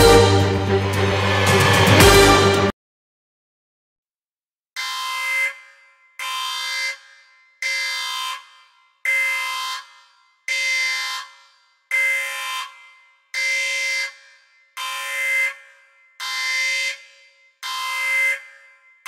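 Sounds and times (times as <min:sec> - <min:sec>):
electronic alarm buzzing: 0:00.0 - 0:01.0, 0:04.8 - 0:14.2, 0:14.8 - 0:19.0.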